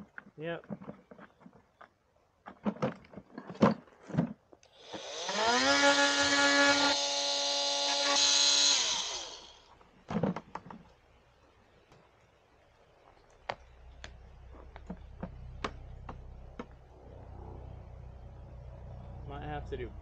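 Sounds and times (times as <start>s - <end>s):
power tool whining: 4.7s - 9.7s.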